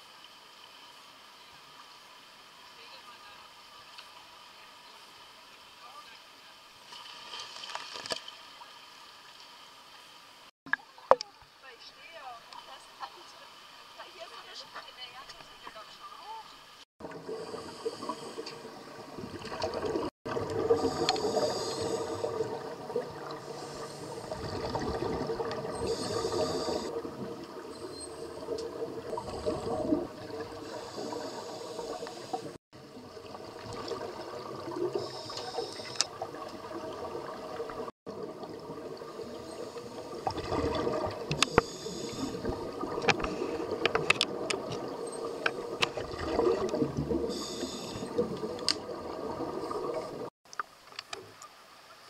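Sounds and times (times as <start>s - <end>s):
steady underwater hum: 8.6s - 52.0s
air bubbles gurgling: 17.0s - 50.3s
regulator hissing: 20.7s - 22.6s, 25.6s - 27.1s, 27.7s - 32.6s, 34.8s - 36.2s, 41.3s - 42.6s, 47.3s - 48.2s.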